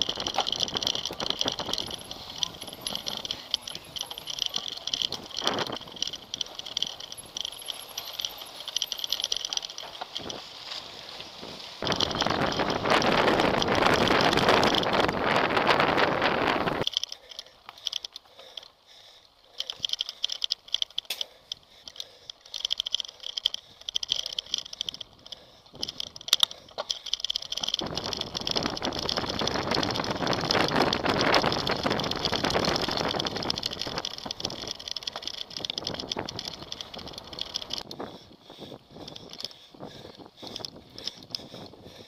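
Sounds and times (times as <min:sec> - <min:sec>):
bike clicking and rattling: 0:00.0 - 0:42.0
tyre and wind rushing: 0:10.1 - 0:16.8, 0:27.8 - 0:42.0.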